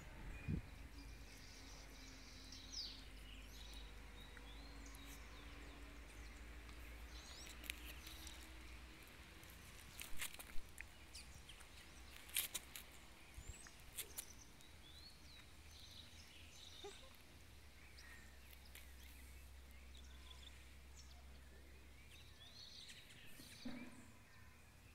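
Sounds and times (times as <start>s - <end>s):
faint clicks and scuffs: 6.0s - 15.5s, 18.4s - 20.1s
puppies chirping: 16.8s - 17.2s.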